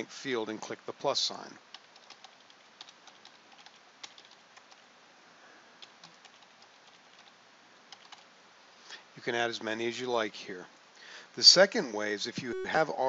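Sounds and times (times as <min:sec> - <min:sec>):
keyboard typing: 0:01.7 - 0:04.8, 0:05.8 - 0:07.3, 0:07.9 - 0:08.2.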